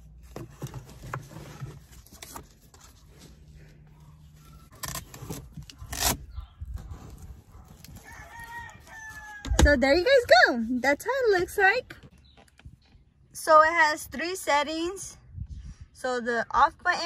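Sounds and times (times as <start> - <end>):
straps and plastic scraping fabric: 0.0 - 11.3.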